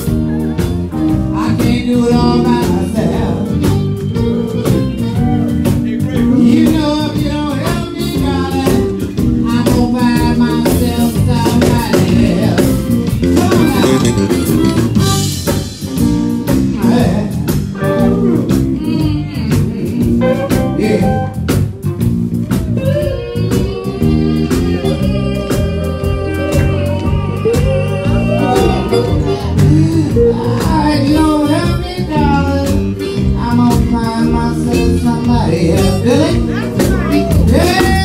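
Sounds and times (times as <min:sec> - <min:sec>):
keyboard: 0:00.0 - 0:21.8
bass: 0:00.0 - 0:38.0
electric guitar bending notes: 0:00.0 - 0:38.0
steady drum beat: 0:00.0 - 0:38.0
man singing into a microphone: 0:01.1 - 0:03.9, 0:04.6 - 0:14.4, 0:16.7 - 0:21.4, 0:23.0 - 0:38.0.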